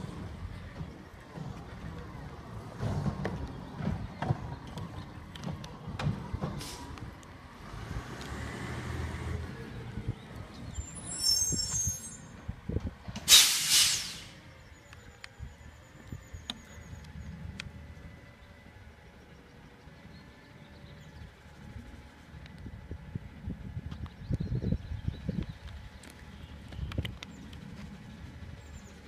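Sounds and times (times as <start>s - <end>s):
diesel truck engine running: 0.0s - 29.0s
air brake hiss: 6.6s - 7.0s, 13.3s - 14.4s
brake squeal: 10.6s - 12.4s, 13.3s - 14.7s.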